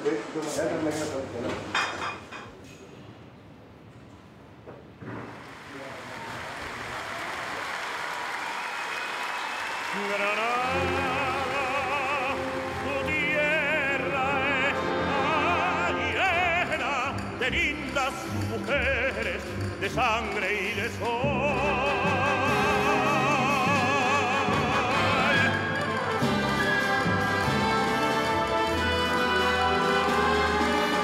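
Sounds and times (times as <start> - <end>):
male opera singer singing: 9.8 - 31.0
orchestra with strings: 9.9 - 31.0.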